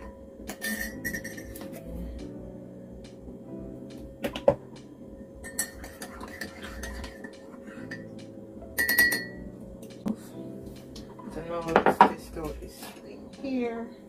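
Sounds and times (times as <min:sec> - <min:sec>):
spoon clinking with ringing tone: 0:00.0 - 0:01.6, 0:05.4 - 0:06.0, 0:07.8 - 0:09.4
spoon stirring in a ceramic mug: 0:00.5 - 0:01.7, 0:05.4 - 0:08.2, 0:08.8 - 0:09.4.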